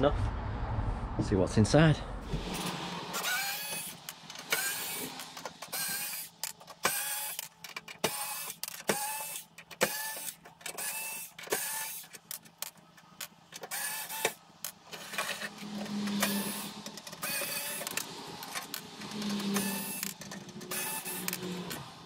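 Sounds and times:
electric screwdriver whirring: 0:02.3 - 0:12.3, 0:13.6 - 0:14.4, 0:15.0 - 0:22.0
plastic parts clicking and knocking: 0:03.2 - 0:22.0.

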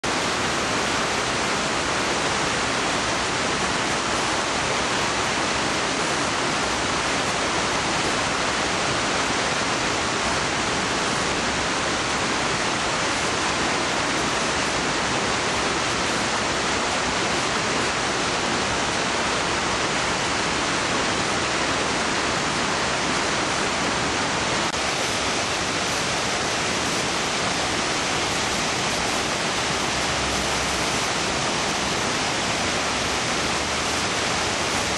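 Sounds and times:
river water rushing over weir: 0:00.0 - 0:34.9.

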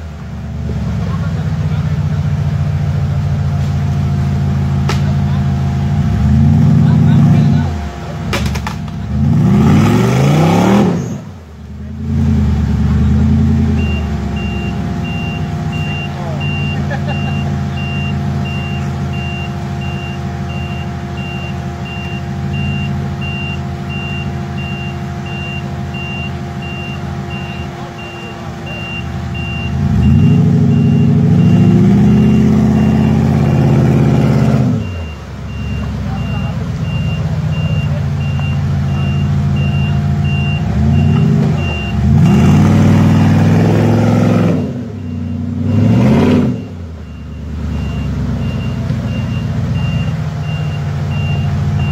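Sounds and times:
buggy engine revving: 0:00.0 - 0:51.9
high electronic beep: 0:13.7 - 0:51.9.

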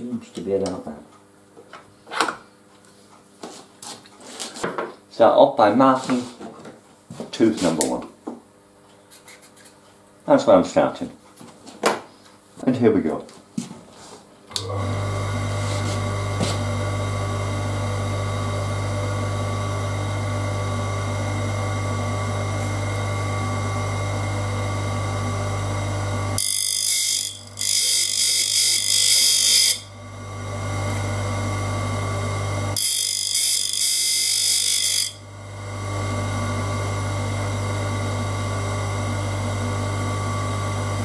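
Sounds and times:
grinding wheel motor humming: 0:14.5 - 0:41.0.

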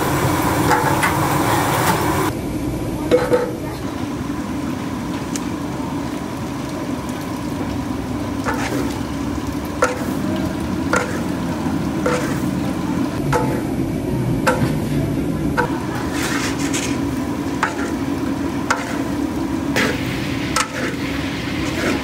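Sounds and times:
spices sizzling in hot oil: 0:00.0 - 0:02.4, 0:03.5 - 0:14.8, 0:15.5 - 0:22.0
metal ladle scraping a wok: 0:08.4 - 0:09.0, 0:10.9 - 0:11.4, 0:12.0 - 0:12.6, 0:15.6 - 0:22.0.

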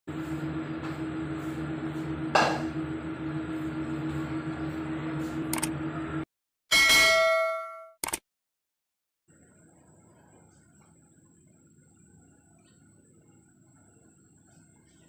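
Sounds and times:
steady hum: 0:00.1 - 0:06.2, 0:09.3 - 0:15.0.

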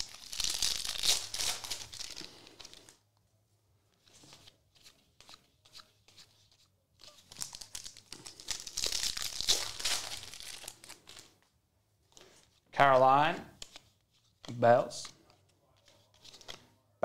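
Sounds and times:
plastic wrapper tearing and crinkling: 0:00.0 - 0:02.9, 0:07.1 - 0:11.3
cards ticking when handled: 0:13.5 - 0:16.6.

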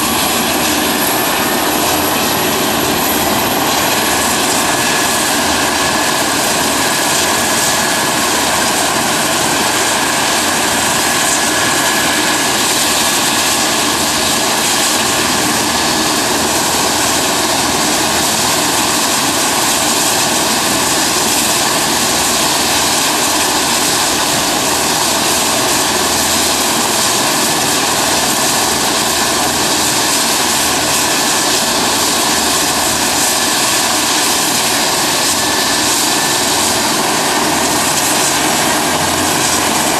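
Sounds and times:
helicopter rotor and turbine whine: 0:00.0 - 0:39.9.

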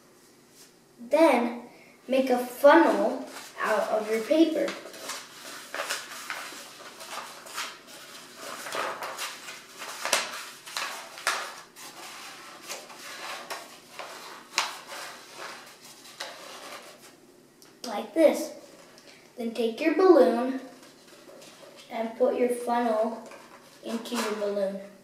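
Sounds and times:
paper rustling and crinkling: 0:03.1 - 0:17.2, 0:20.7 - 0:21.9, 0:23.2 - 0:24.6.

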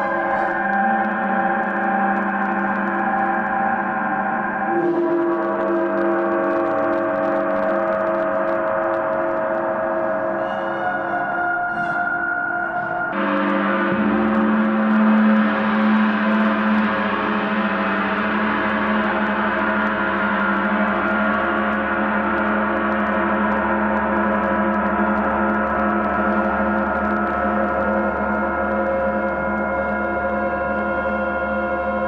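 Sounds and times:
gong ringing: 0:00.0 - 0:03.3.

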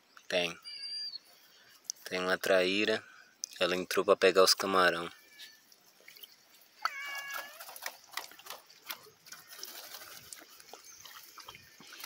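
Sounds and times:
water splashing and dripping: 0:05.7 - 0:12.0.

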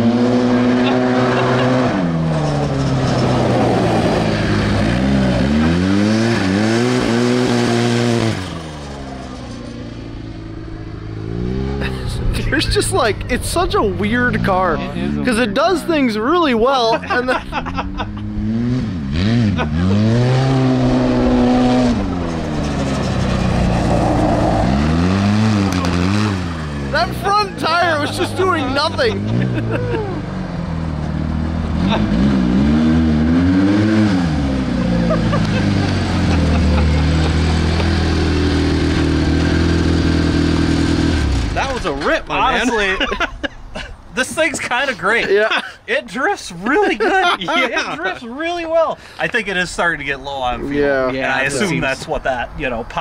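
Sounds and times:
utility vehicle engine running: 0:00.0 - 0:15.3, 0:17.3 - 0:42.7.

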